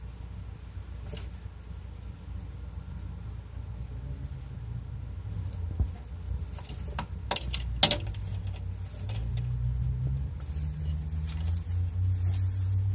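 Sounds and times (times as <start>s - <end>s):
steady low hum: 0.0s - 12.9s
light ticks: 2.8s - 3.1s.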